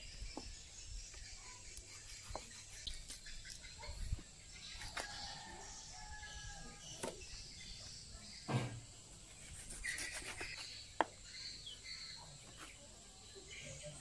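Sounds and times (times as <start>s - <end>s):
dull thump: 8.5s - 8.8s.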